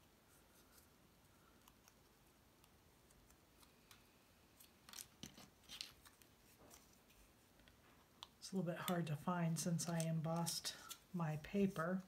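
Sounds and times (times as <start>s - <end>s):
cardstock rustling and ticking: 8.8s - 12.0s.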